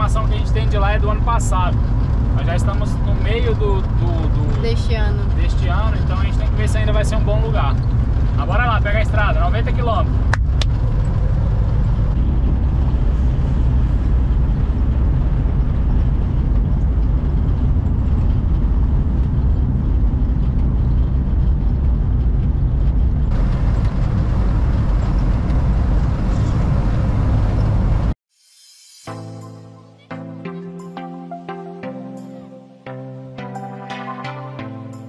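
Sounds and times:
van engine and road noise rumble: 0.0 - 28.2
bright hiss: 28.3 - 29.2.

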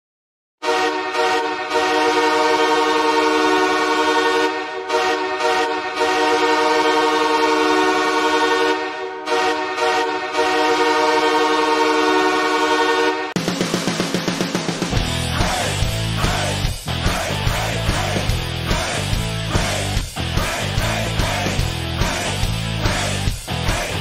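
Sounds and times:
goal horn blasting: 0.6 - 13.4.

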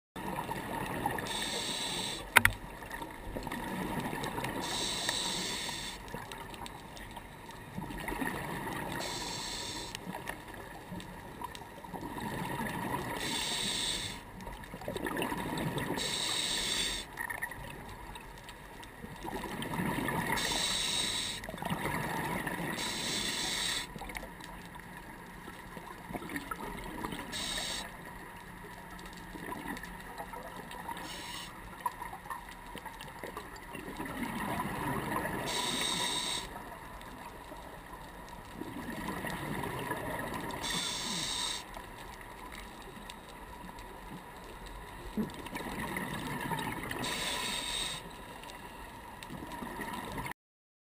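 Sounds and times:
diver inhaling through regulator: 1.2 - 2.4, 4.6 - 6.0, 9.0 - 10.0, 13.2 - 14.2, 16.0 - 17.1, 20.4 - 21.4, 22.7 - 23.9, 27.2 - 27.9, 31.0 - 31.5, 35.4 - 36.6, 40.6 - 41.7, 47.0 - 48.1.

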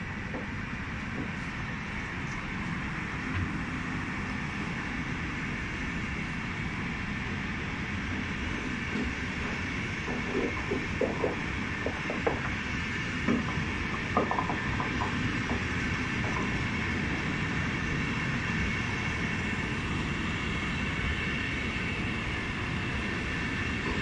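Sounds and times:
train wheels rumbling on rails: 0.0 - 24.0
clicks of train wheels: 8.5 - 17.3, 23.8 - 24.0.

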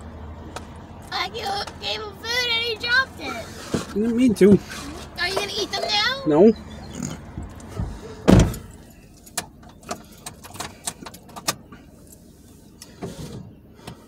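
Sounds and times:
dull thump: 7.7 - 8.7.

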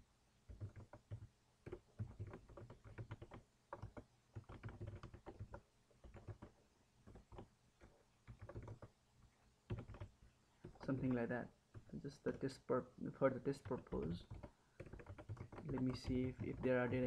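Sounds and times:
typing on computer keyboard: 0.5 - 8.9, 9.7 - 12.0, 13.6 - 17.0.

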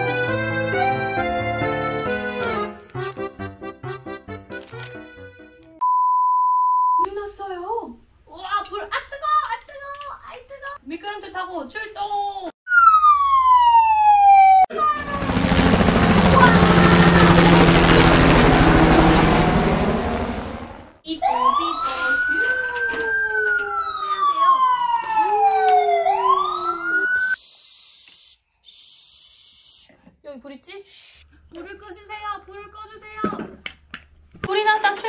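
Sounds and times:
toy fire engine siren: 12.7 - 15.2, 21.1 - 27.4
falling whistle: 23.6 - 27.4.

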